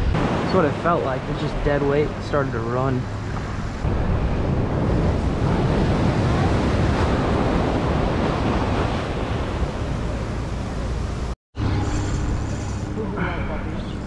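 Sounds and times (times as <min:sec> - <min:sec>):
ocean surf rushing: 0:00.0 - 0:11.4
wind buffeting microphone: 0:03.0 - 0:11.3.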